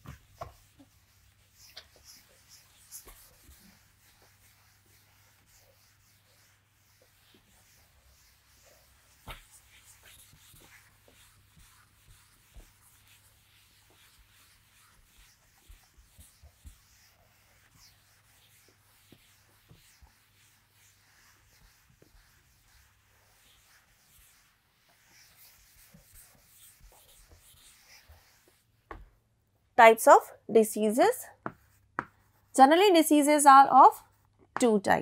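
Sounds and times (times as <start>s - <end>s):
duster rubbing chalkboard: 0.0s - 29.0s
soft taps: 28.9s - 29.2s, 31.4s - 32.2s.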